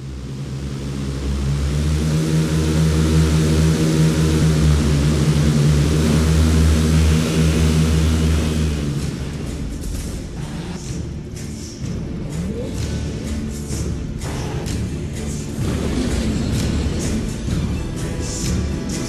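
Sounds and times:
rushing noise: 0.0 - 11.0
steady engine drone: 0.0 - 19.0.

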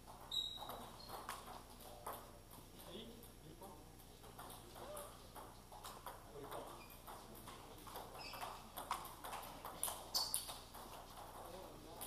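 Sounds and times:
table tennis balls clicking: 0.1 - 3.4, 4.2 - 12.0.

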